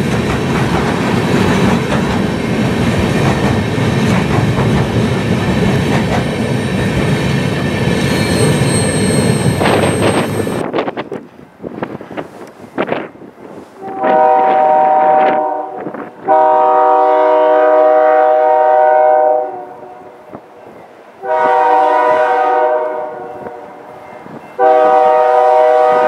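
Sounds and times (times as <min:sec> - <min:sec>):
locomotive air horn blasts: 0:13.8 - 0:20.1, 0:21.2 - 0:24.0, 0:24.6 - 0:26.0.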